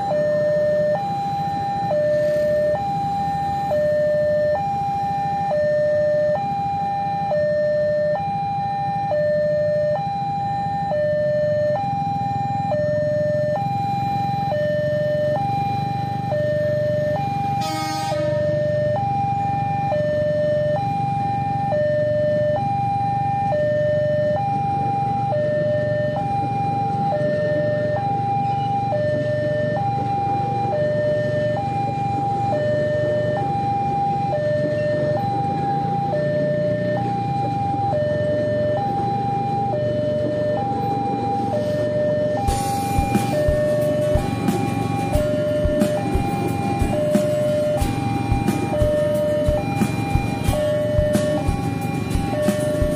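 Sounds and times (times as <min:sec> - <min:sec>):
level crossing two-tone warning signal: 0:00.0 - 0:52.9
electric train rumbling past: 0:41.2 - 0:52.9.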